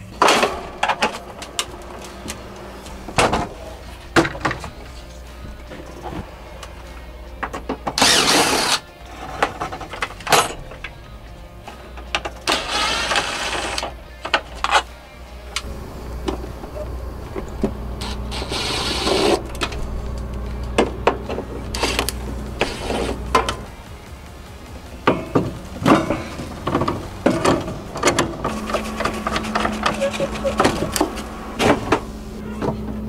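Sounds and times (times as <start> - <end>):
low steady hum: 0.0 - 8.3, 8.9 - 33.0
cordless drill backing out screws: 8.0 - 8.8.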